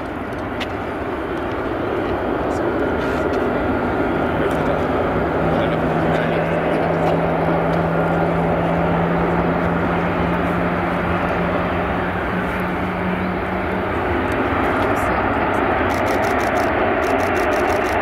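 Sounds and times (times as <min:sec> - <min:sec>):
jet engines rolling on runway: 0:00.0 - 0:18.0.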